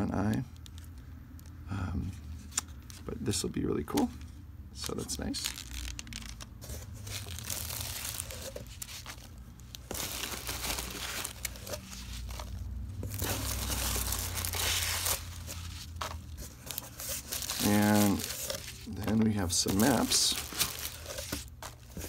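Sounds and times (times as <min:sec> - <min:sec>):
packing peanuts rustling: 0:04.8 - 0:22.0.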